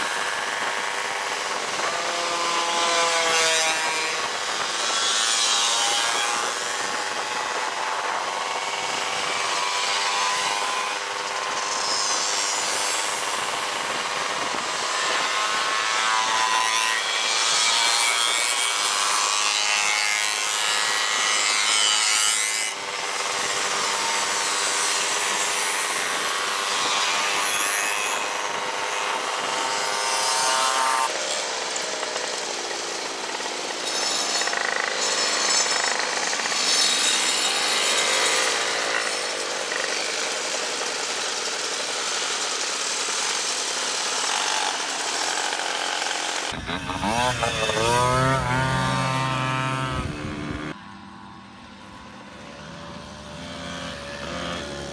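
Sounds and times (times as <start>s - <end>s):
moped engines buzzing: 46.2s - 54.9s.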